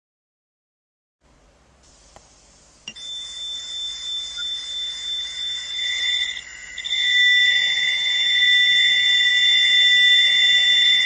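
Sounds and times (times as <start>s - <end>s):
hiss: 1.8s - 5.7s
high whistling tones: 2.9s - 11.0s.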